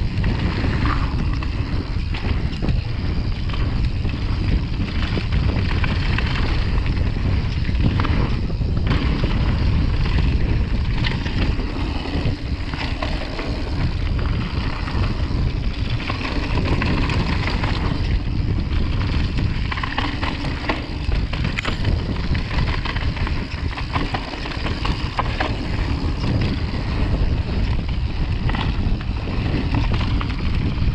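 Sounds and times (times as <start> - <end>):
bike clicks and rattles: 0.0 - 30.9
tyres rolling on dirt: 0.0 - 30.9
wind buffeting microphone: 0.0 - 30.9.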